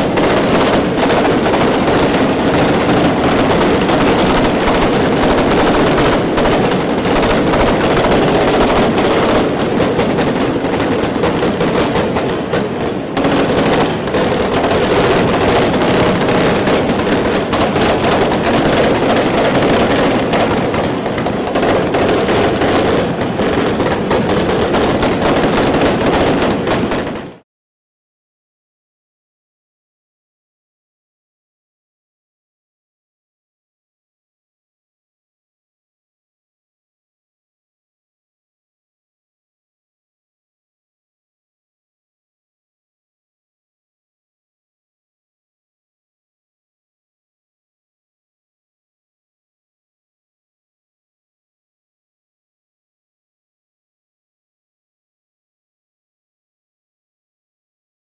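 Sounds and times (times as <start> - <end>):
rapid continuous gunfire: 0.0 - 27.4.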